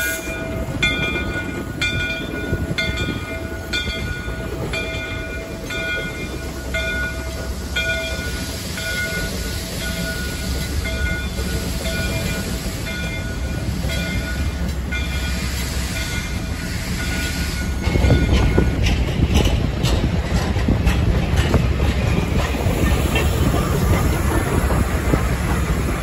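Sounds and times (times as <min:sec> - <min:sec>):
locomotive bell ringing: 0:00.0 - 0:19.2
locomotive rumble on rails: 0:00.0 - 0:26.0.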